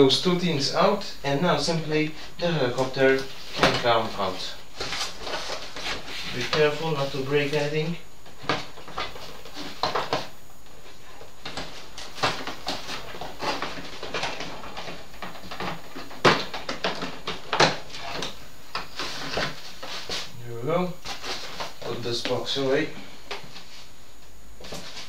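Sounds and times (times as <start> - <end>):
packaging rustling and scraping: 2.8 - 7.6, 11.4 - 20.4, 21.0 - 21.9.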